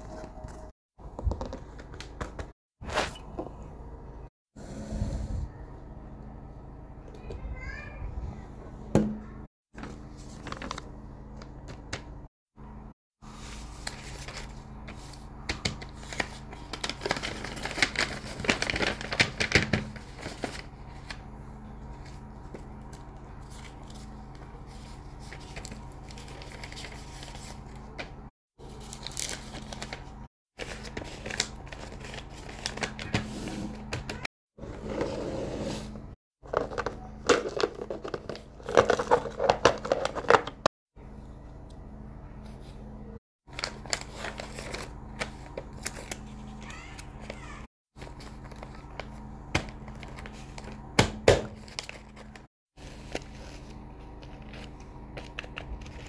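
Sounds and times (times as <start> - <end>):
paper and plastic rustling: 9.8 - 12.1, 13.2 - 21.2, 21.9 - 34.3, 36.4 - 40.7, 43.5 - 51.0, 51.6 - 56.0.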